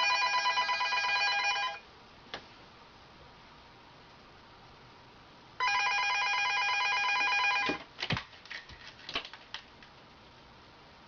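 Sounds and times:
telephone ringing: 0.0 - 1.8, 5.6 - 7.8.

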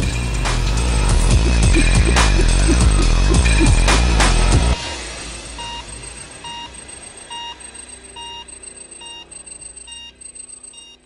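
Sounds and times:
faint low drone: 0.0 - 10.8
bell-like electronic beep: 4.7 - 11.0.

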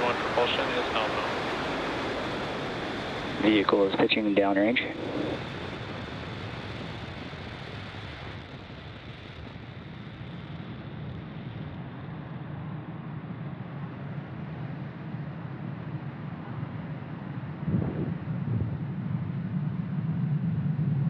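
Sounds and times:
rocket engine hiss: 0.0 - 11.4
rocket engines deep rumbling: 0.0 - 21.0.

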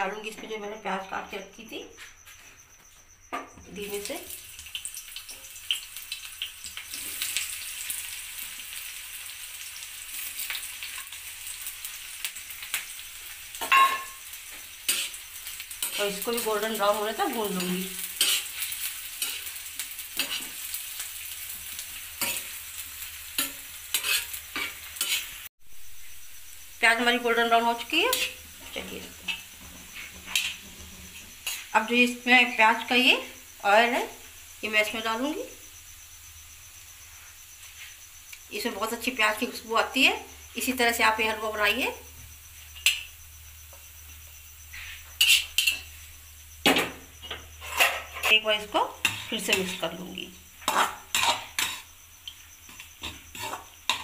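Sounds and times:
onions sizzling in hot oil: 2.6 - 54.0
spoon clinking on iron pan: 13.6 - 14.2
spatula scraping a pan: 13.7 - 16.2, 17.6 - 25.5, 28.1 - 31.7, 44.7 - 46.1, 47.2 - 50.0, 50.6 - 51.9, 52.7 - 54.0.

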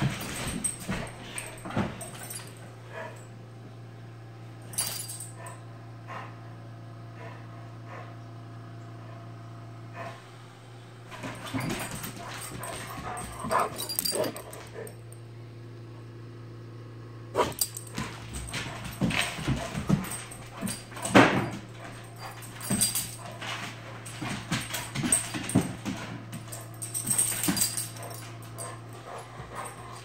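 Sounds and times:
dogs yipping and barking: 11.3 - 15.0, 17.4 - 30.0.

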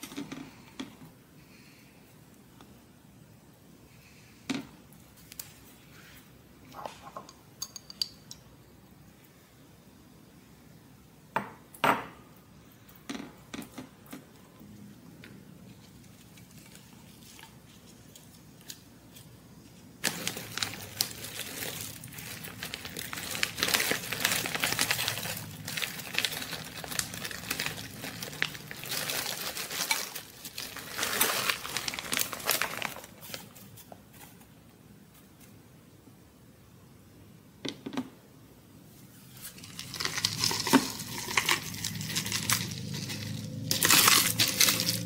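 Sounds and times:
plastic bag crinkling: 20.0 - 34.3, 39.4 - 45.0.

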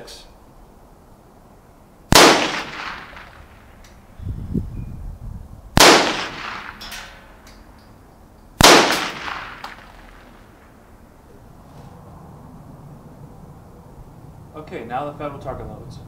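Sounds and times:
rifle shots with echo: 2.1 - 3.8, 5.8 - 7.3, 8.6 - 10.7.

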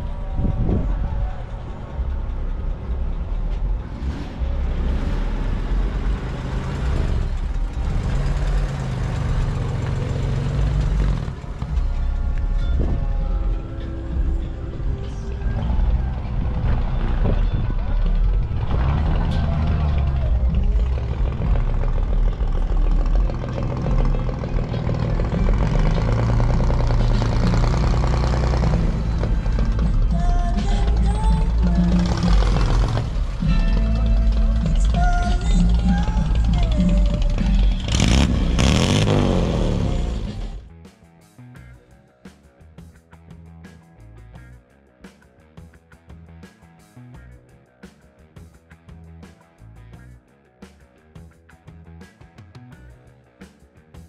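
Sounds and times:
vehicle engine running: 0.0 - 40.7.

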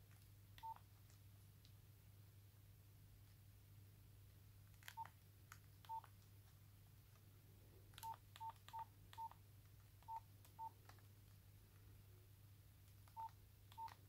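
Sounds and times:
faint low hum: 0.0 - 14.0
phone keypad beeps: 0.6 - 0.8, 5.9 - 6.1, 8.0 - 9.4, 13.2 - 14.0.

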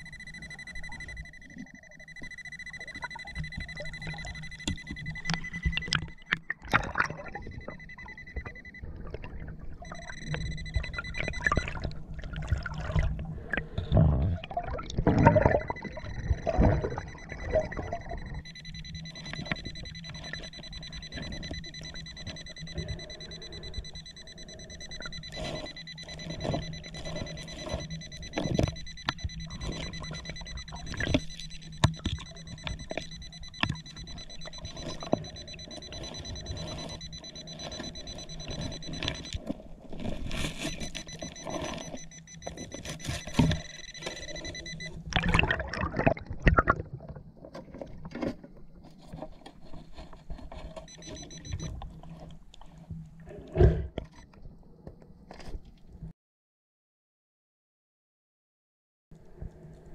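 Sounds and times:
metal detector high tone: 0.0 - 6.2, 7.2 - 8.9, 9.8 - 11.9, 15.2 - 39.4, 40.0 - 45.0, 50.8 - 51.7
hand digging among rocks: 37.6 - 42.0.

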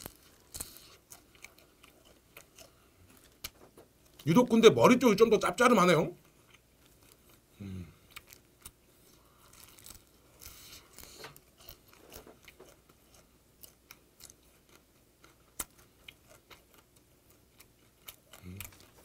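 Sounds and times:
crunchy chewing: 0.0 - 4.3, 6.2 - 19.0
person humming low: 7.6 - 8.0.

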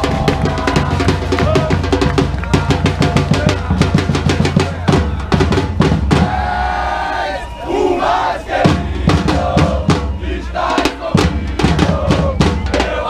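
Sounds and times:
drum band playing fast: 0.0 - 7.6, 8.4 - 13.0
crowd chanting: 0.0 - 13.0.

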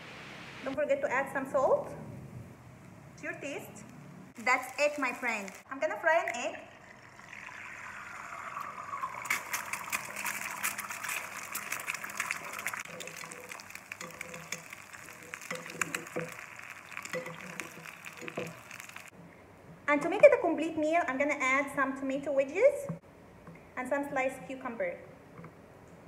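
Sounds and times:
egg sizzling in oil: 4.4 - 19.2.

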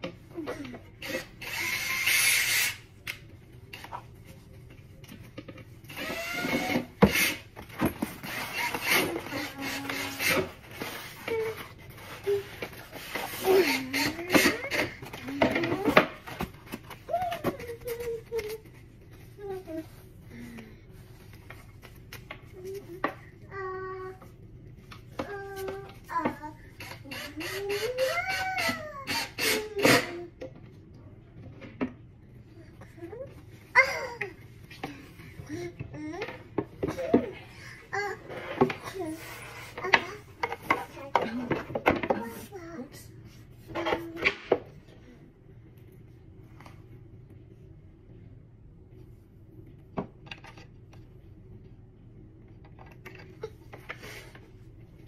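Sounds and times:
cordless drill driving screws: 1.0 - 2.8.

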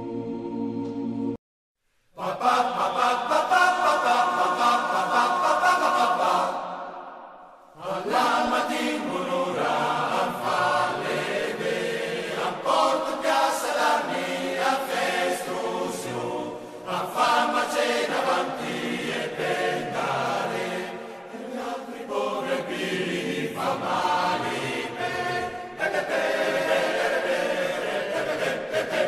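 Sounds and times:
choir singing: 0.0 - 1.4, 2.2 - 29.0.

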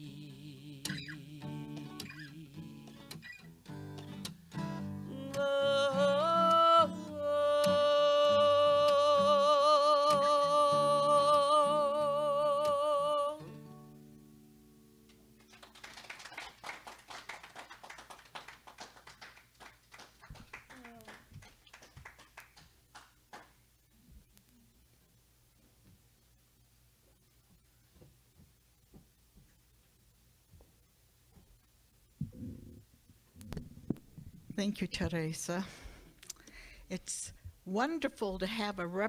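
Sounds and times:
woman singing with vibrato: 0.0 - 2.8, 5.0 - 13.6
acoustic guitar chord ringing: 0.0 - 15.4
light clapping: 15.4 - 23.6.

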